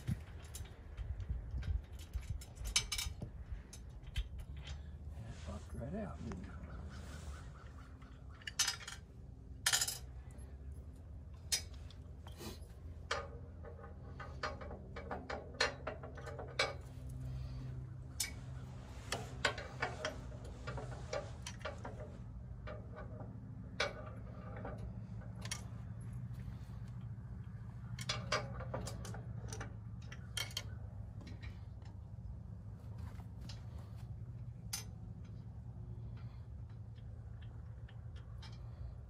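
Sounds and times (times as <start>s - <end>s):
metallic clinks of tools and bolts: 0.0s - 4.8s, 8.3s - 10.6s.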